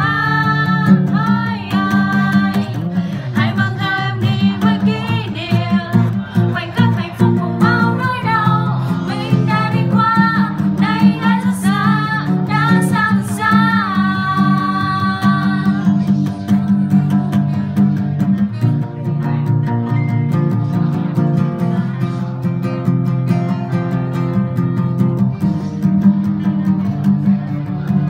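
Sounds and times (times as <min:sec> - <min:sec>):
person singing: 0:00.0 - 0:18.1
acoustic guitar: 0:00.0 - 0:28.0.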